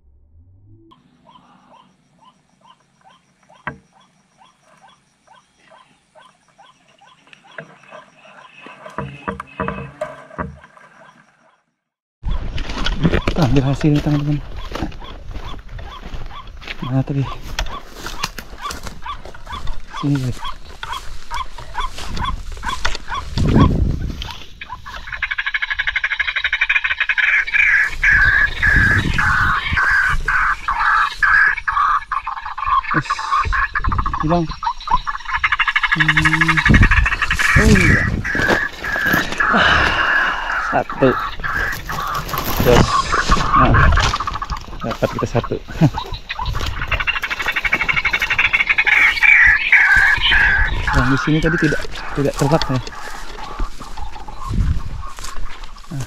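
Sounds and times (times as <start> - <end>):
shrill insect-like pulsing: 0.9 - 11.6
waterhen croaking call: 0.9 - 11.7, 13.0 - 56.0
footsteps in undergrowth: 12.4 - 25.4, 35.7 - 56.0.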